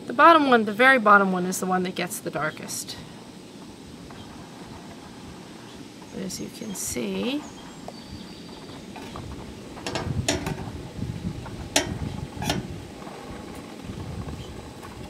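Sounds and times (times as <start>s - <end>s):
metal tongs clinking on pan: 11.8s - 12.6s.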